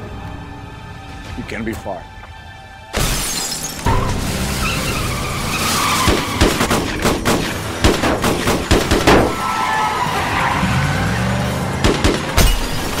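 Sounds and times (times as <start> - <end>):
tyres squealing: 4.4 - 6.6
rapid gunshots: 6.0 - 9.3, 11.8 - 13.0.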